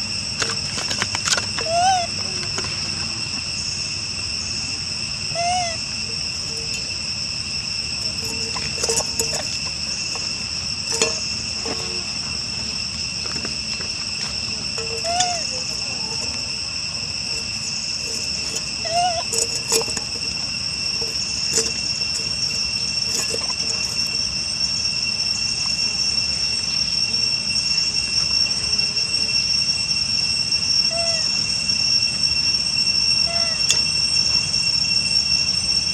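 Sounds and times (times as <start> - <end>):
faint chirps: 0.0 - 35.9
insects droning: 0.0 - 35.9
metal can clinking: 8.1 - 10.3, 10.9 - 12.1, 14.8 - 16.4, 17.3 - 24.2.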